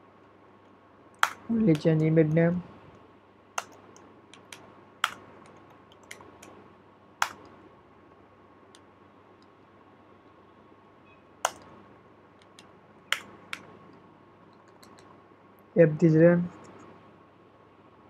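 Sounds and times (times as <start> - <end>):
faint steady hum: 0.0 - 18.0
keyboard keystroke clicks: 3.6 - 6.6, 14.7 - 15.1.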